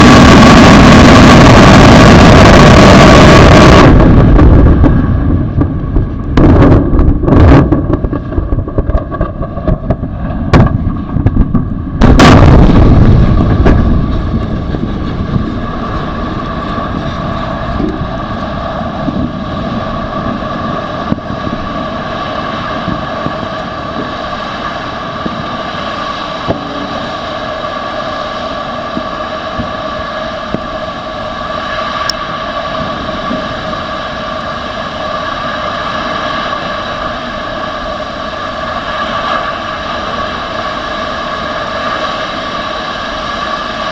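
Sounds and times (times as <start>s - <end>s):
explosion blast: 0.0s - 34.0s
roar of burning fire: 0.0s - 43.9s.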